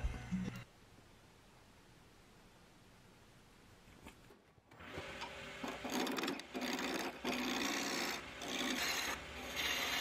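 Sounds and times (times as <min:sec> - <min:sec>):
turning tool scraping wood: 0:05.6 - 0:10.0
wood lathe running: 0:05.6 - 0:10.0.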